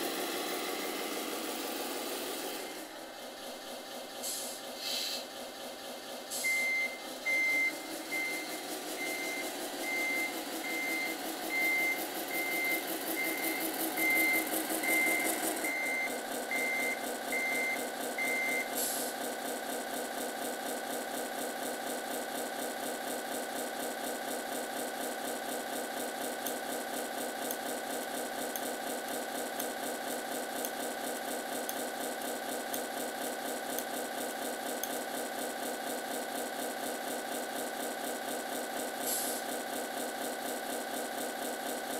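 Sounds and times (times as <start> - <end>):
engine sound from small speaker: 0.0 - 41.9
short hisses: 4.2 - 5.3
reversing beeper: 6.4 - 18.7.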